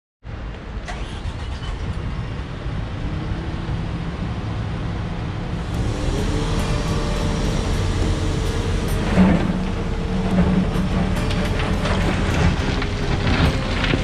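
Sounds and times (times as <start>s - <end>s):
diesel machinery running: 5.3s - 14.0s
engine revving up: 5.5s - 14.0s.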